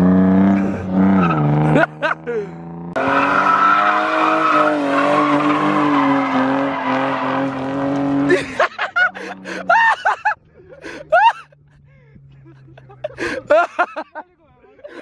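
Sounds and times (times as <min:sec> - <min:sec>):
car engine under throttle: 0:00.0 - 0:09.7
tyres squealing: 0:03.0 - 0:07.7.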